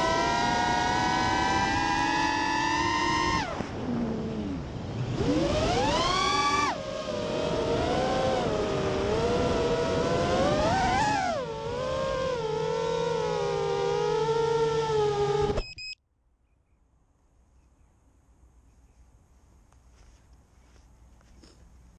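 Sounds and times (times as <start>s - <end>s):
drone motors and propellers whining: 0.0s - 16.0s.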